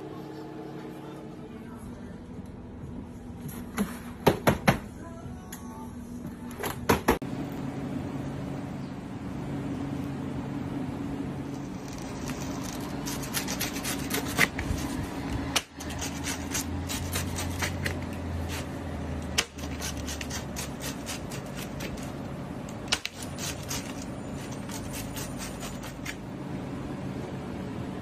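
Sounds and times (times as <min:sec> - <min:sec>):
steady low hum: 0:00.0 - 0:28.0
pizza cutter crunching crust: 0:11.6 - 0:26.3.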